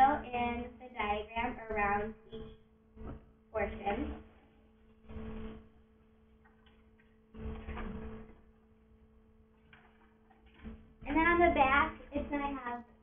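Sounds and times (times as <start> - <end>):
steady electrical hum: 0.0 - 13.0
short bursts of noise: 4.9 - 5.8.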